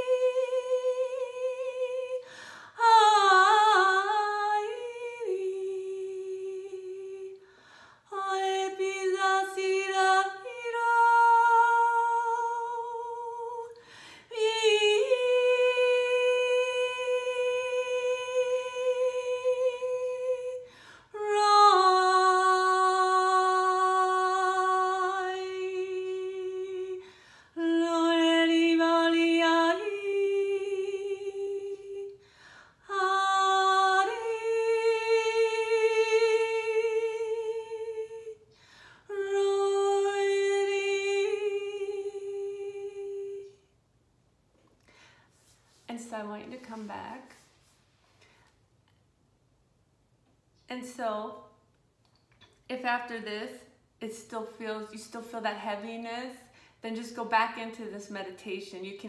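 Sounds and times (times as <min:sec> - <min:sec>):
woman singing wordless tones: 0:00.0 - 0:07.5, 0:08.1 - 0:43.8
woman breathing: 0:02.2 - 0:02.8, 0:07.4 - 0:08.1, 0:13.8 - 0:14.3, 0:20.6 - 0:21.2, 0:27.0 - 0:27.6, 0:32.2 - 0:32.9, 0:38.5 - 0:39.1, 0:44.8 - 0:45.9, 0:56.5 - 0:56.8.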